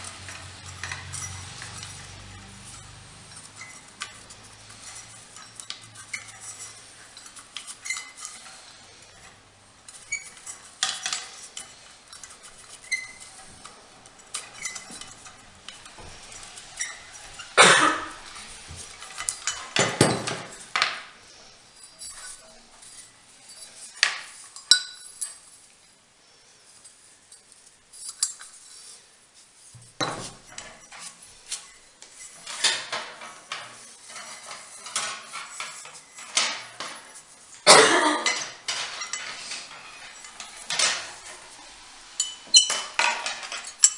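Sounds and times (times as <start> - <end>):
metal doorbell parts clinking: 23.7 - 25.4, 38.2 - 41.3, 42.2 - 43.9.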